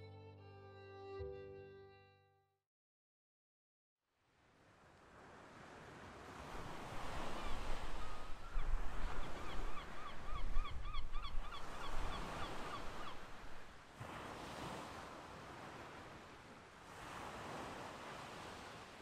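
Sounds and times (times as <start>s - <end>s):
surf washing on beach: 4.4s - 10.0s, 11.6s - 19.0s.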